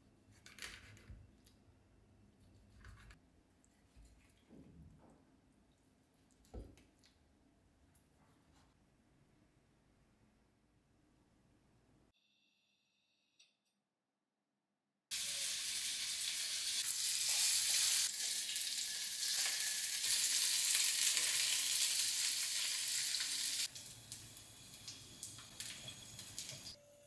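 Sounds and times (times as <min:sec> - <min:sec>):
fish sizzling in hot oil: 0:15.1 - 0:26.8.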